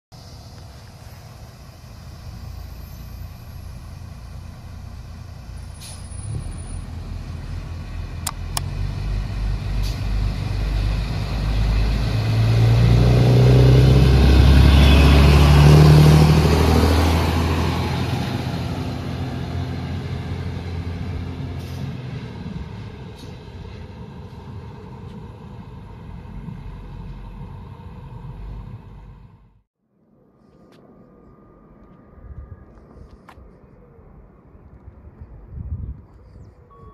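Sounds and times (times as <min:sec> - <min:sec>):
diesel railcar passing: 0:00.1 - 0:29.6.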